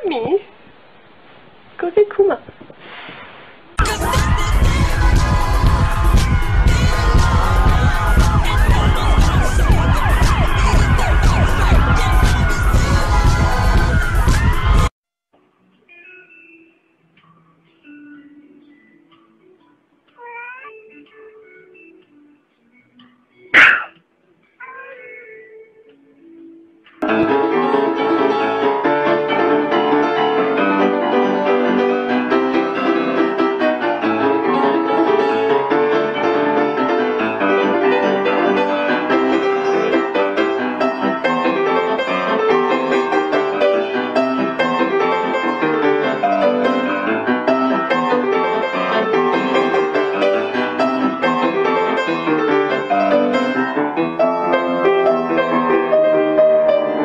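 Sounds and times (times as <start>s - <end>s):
piano music: 3.8s - 14.9s, 27.0s - 57.0s.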